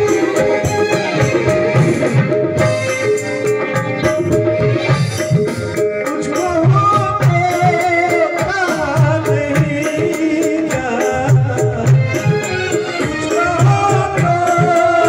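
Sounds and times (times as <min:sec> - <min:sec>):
harmonium: 0:00.0 - 0:15.0
tabla strokes: 0:00.0 - 0:15.0
man singing: 0:05.8 - 0:15.0.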